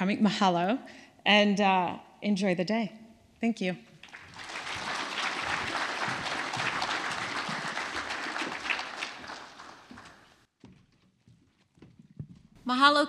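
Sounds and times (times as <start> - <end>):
audience applauding: 4.0 - 10.5.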